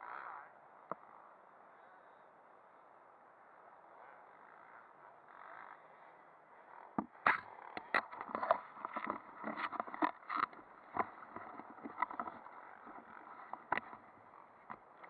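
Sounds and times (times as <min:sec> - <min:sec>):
gear handling clicks and rustling: 0:07.3 - 0:15.0.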